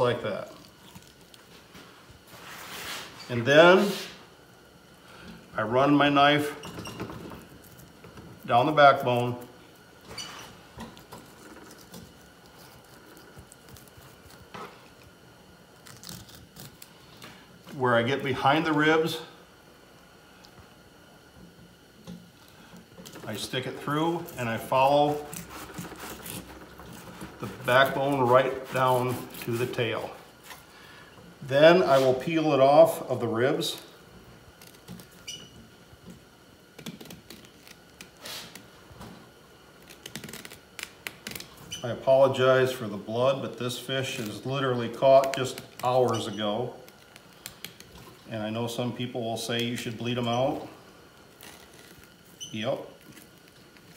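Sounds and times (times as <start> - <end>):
knife scraping rasp: 24.2 - 30.0.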